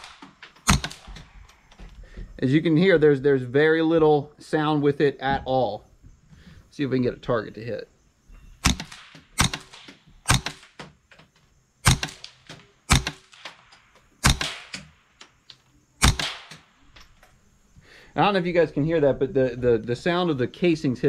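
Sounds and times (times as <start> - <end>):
suppressed rifle shots: 0.0 - 1.3, 8.6 - 10.8, 11.8 - 15.1, 16.0 - 16.8.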